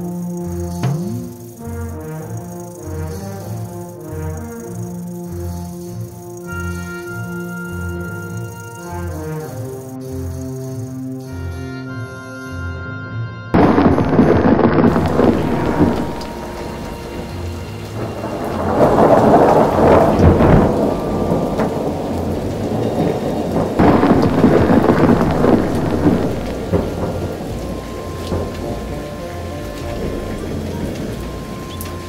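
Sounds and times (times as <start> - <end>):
heavy steady rain: 0.0 - 11.8, 13.6 - 32.0
thunder rolling: 13.6 - 32.0.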